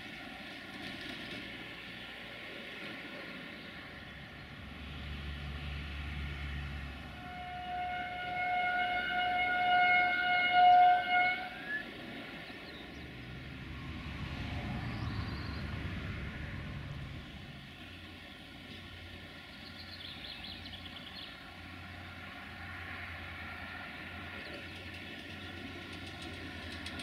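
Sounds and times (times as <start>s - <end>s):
low rumble of railway traffic: 0.0s - 27.0s
train horn blast: 7.0s - 12.1s.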